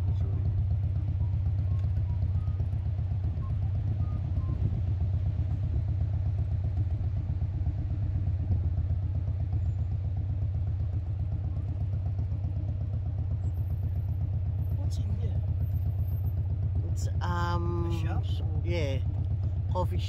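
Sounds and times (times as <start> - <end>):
car engine rumble from inside: 0.0 - 20.0.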